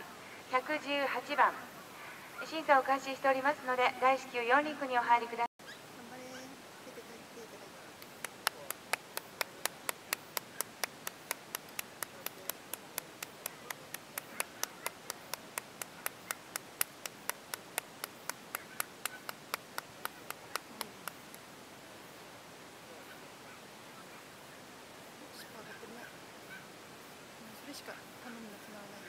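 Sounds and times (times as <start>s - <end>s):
rhythmic hand-clapping: 8.0s - 21.4s.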